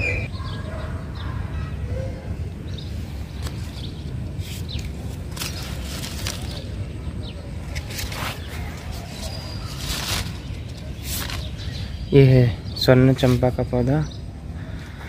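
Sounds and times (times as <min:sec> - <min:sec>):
leaves rustling: 0:02.8 - 0:13.7.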